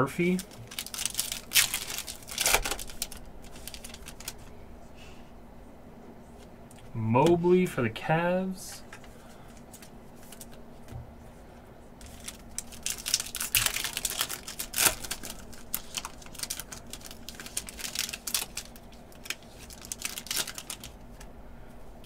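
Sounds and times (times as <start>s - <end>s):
cards rustling: 0.2s - 4.5s, 8.8s - 10.9s, 12.0s - 21.3s
foil wrapper crinkling and tearing: 0.2s - 4.5s, 12.0s - 21.2s.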